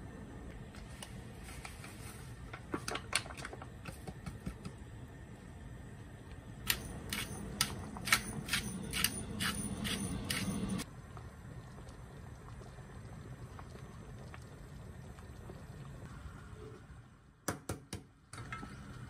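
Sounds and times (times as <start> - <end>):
low steady hum: 0.0 - 17.4
pepper mill grinding clicks: 6.7 - 10.8.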